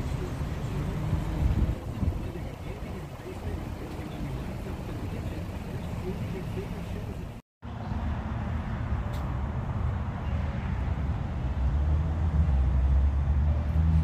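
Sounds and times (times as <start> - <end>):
car engine and road noise: 0.0 - 14.0.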